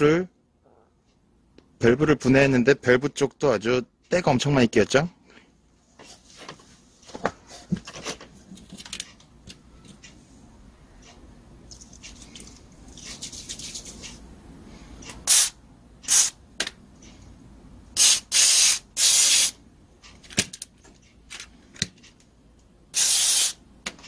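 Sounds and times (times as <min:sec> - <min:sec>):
aerosol spray hissing: 0:16.1 - 0:16.3, 0:18.0 - 0:19.6, 0:23.0 - 0:23.6.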